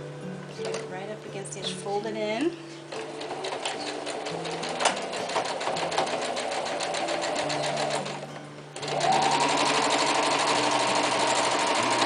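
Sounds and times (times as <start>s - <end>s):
sewing machine stitching: 2.9s - 8.2s, 8.8s - 12.0s
sewing machine motor whine: 3.0s - 8.2s, 8.8s - 12.0s.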